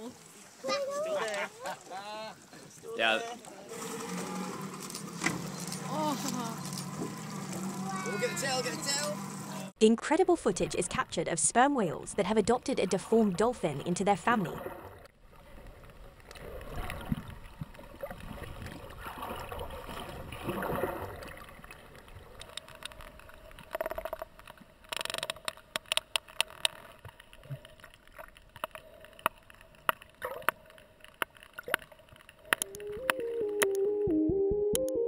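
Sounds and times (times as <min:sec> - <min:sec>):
underwater water noise: 0:00.0 - 0:33.9
whale echolocation clicks: 0:21.6 - 0:33.9
synth music: 0:32.7 - 0:35.0.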